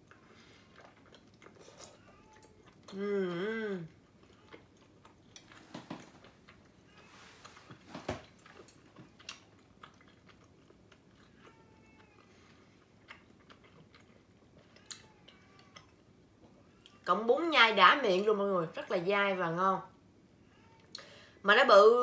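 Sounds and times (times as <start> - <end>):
chewing noodles: 0.0 - 3.1, 3.8 - 17.0.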